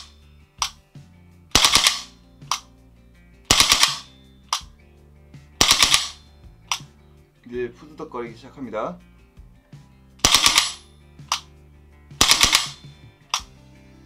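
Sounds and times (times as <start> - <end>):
airsoft rifle firing bursts: 1.5 - 2.1, 3.5 - 4.1, 5.6 - 6.2, 10.2 - 10.8, 12.2 - 12.9.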